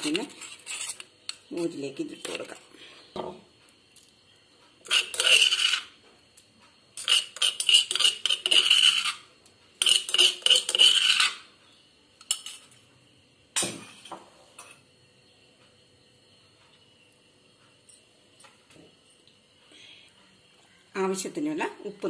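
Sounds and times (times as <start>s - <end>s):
spoon scraping and clinking dishes: 4.8s - 5.9s, 7.0s - 9.2s, 9.8s - 11.4s, 12.2s - 12.9s.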